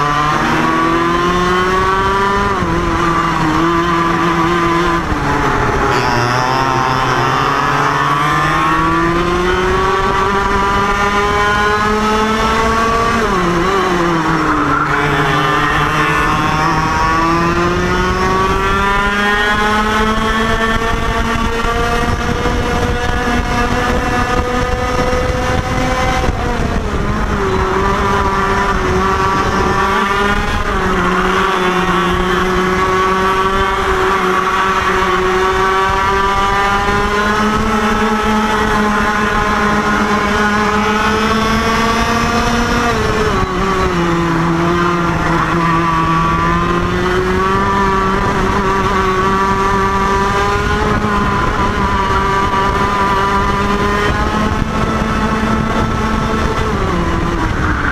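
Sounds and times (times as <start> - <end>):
kart engine racing: 0.0 - 57.9
second kart engine: 0.0 - 57.9.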